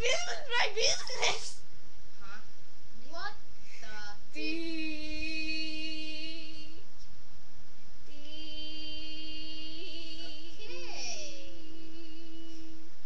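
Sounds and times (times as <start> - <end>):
girl singing long notes: 3.8 - 6.8, 8.0 - 12.9.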